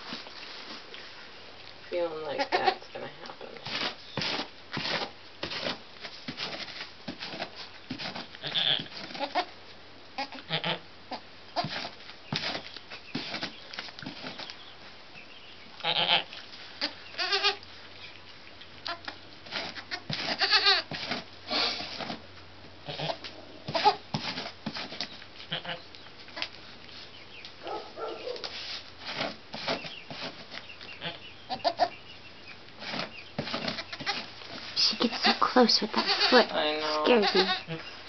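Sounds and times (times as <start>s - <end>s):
rustling in straw: 0.0s - 1.6s, 22.9s - 31.9s
goats bleating: 8.4s - 9.5s, 15.8s - 17.6s, 19.7s - 20.9s, 22.8s - 24.0s, 25.5s - 25.8s, 35.0s - 38.0s.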